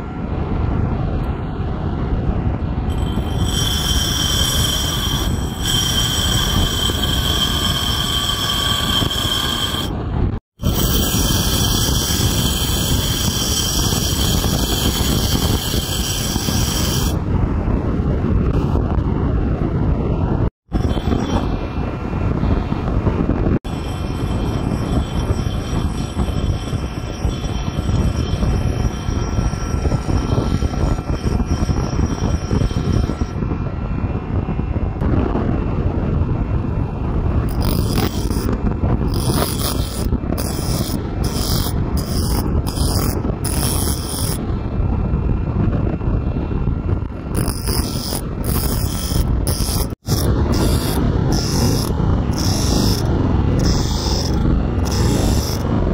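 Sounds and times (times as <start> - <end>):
bench grinder running: 2.9 - 10.0, 10.6 - 17.2, 39.1 - 44.4, 47.4 - 55.9
short high grinding strokes: 2.9 - 10.0, 10.6 - 17.2, 37.5 - 44.4, 47.3 - 55.9.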